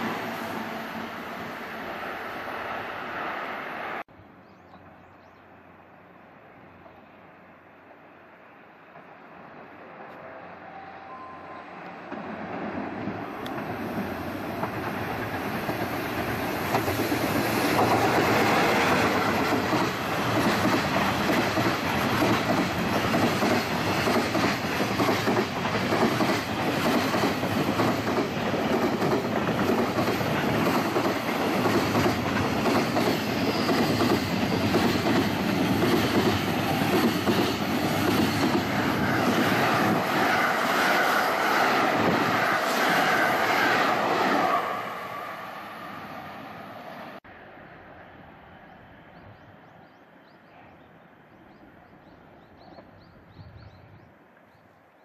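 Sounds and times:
express train passing: 0:00.0 - 0:55.0
train wheels rumbling on rails: 0:08.8 - 0:45.9.

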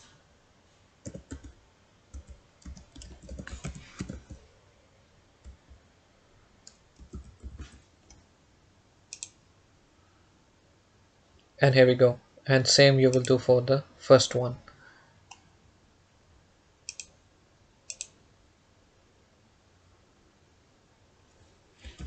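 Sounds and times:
keyboard typing clicks: 0:01.0 - 0:04.4, 0:06.6 - 0:08.2, 0:09.1 - 0:09.4, 0:16.9 - 0:17.2, 0:17.9 - 0:18.2
mouse click: 0:09.1 - 0:09.4, 0:16.9 - 0:17.2, 0:17.9 - 0:18.2.

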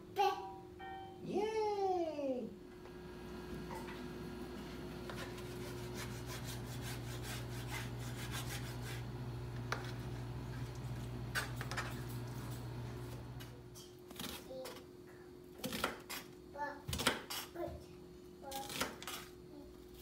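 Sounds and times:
steady low hum: 0:02.0 - 0:15.6
knife sawing through meat: 0:05.1 - 0:09.1.

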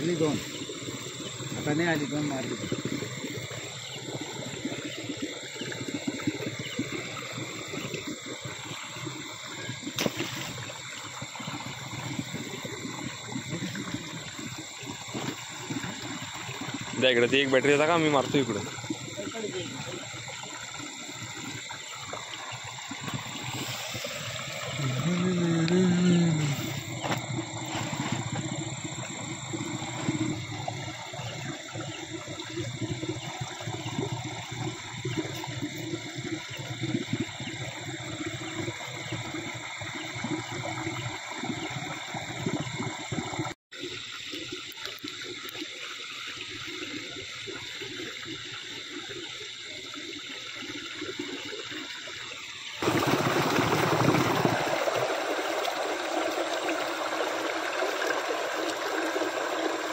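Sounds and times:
water rushing past wall: 0:52.8 - 0:59.9.

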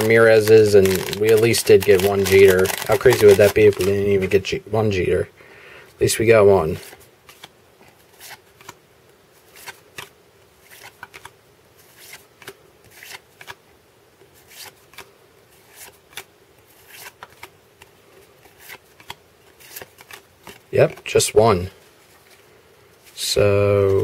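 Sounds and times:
trading cards swishing: 0:00.0 - 0:04.4, 0:14.4 - 0:21.0.

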